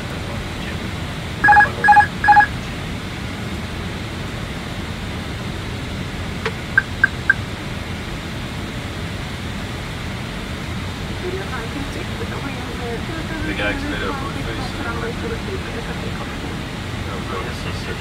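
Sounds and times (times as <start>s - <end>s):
two-tone electronic chimes: 1.4s - 2.5s, 6.8s - 7.4s.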